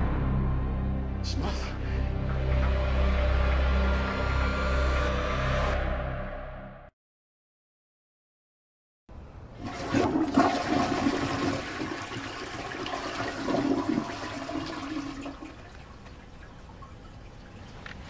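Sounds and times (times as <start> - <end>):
toilet flushing: 9.6 - 17.8.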